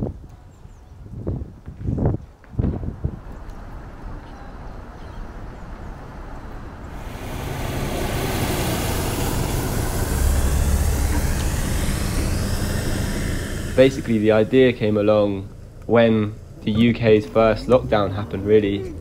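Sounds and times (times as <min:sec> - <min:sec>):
truck passing close by: 0:06.2 - 0:16.6
car cabin road and engine noise: 0:06.2 - 0:19.0
faint low rumble: 0:06.4 - 0:19.0.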